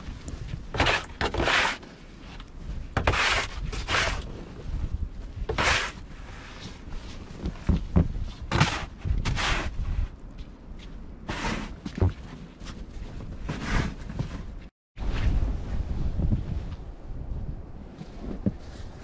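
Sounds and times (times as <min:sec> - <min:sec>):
snow shovel scraping deck: 0:00.8 - 0:01.9, 0:03.0 - 0:04.4, 0:05.5 - 0:06.8, 0:08.4 - 0:09.8, 0:11.3 - 0:11.8, 0:13.5 - 0:14.1.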